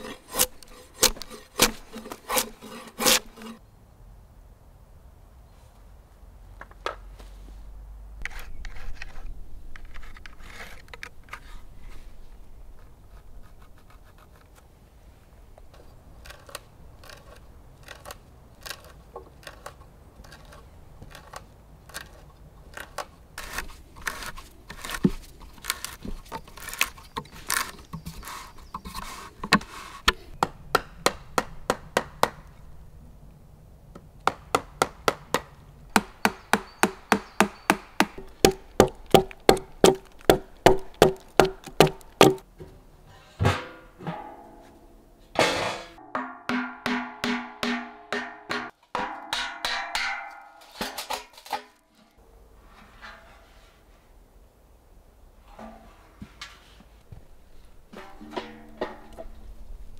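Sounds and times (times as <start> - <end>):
hand boring scraping and creaking: 0.0 - 3.6, 15.6 - 30.4
wooden knocks: 36.0 - 42.4.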